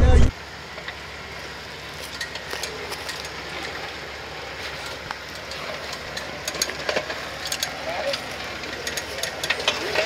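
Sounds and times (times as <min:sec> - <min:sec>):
engine and drivetrain rumble: 0:00.0 - 0:10.0
small clicks and knocks: 0:04.8 - 0:10.0.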